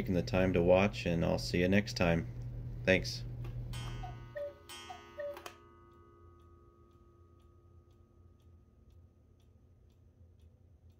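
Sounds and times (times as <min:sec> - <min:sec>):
faint ringing tone: 0:03.8 - 0:09.8
clock ticking faintly: 0:03.8 - 0:10.9.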